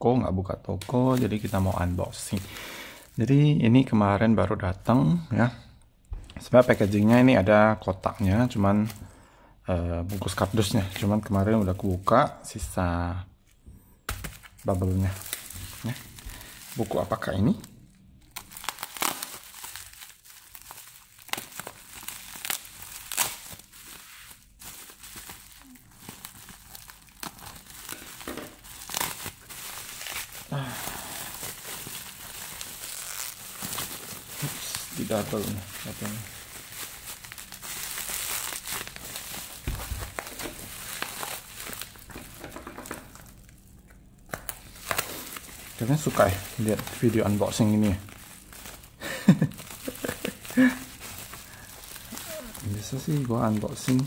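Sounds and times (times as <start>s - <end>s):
bubble wrap crackling: 0.8s - 4.0s, 6.4s - 9.1s, 10.0s - 12.4s, 14.1s - 54.0s
scissors snipping bubble wrap: 18.4s - 23.7s, 44.3s - 47.9s, 49.5s - 54.0s.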